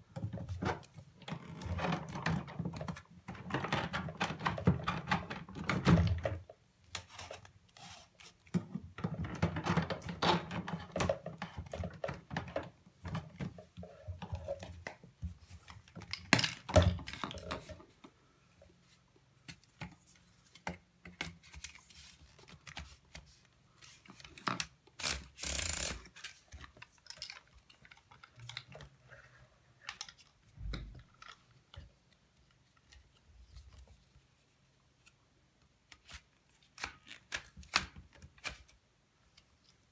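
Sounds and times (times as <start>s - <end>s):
plastic and metal clicks and knocks: 0.1s - 6.5s.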